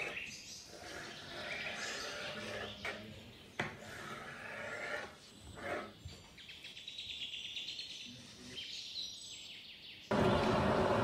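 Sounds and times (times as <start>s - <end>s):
knife scraping through dough: 0.0s - 3.0s, 3.7s - 6.0s.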